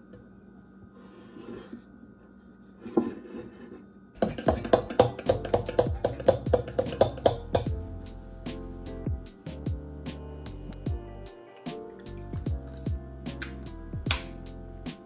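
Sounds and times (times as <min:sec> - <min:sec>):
utensil clinking against metal bowl: 0:04.2 - 0:07.7.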